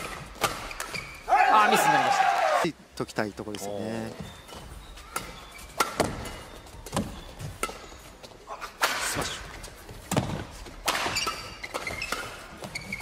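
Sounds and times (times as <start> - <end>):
rackets hitting shuttlecock: 0.0 - 1.0, 5.2 - 8.0, 10.1 - 13.0.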